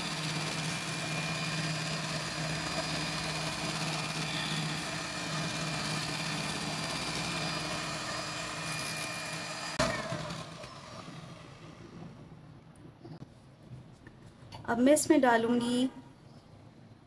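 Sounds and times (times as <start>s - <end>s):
electric hand mixer whining: 0.0s - 11.9s.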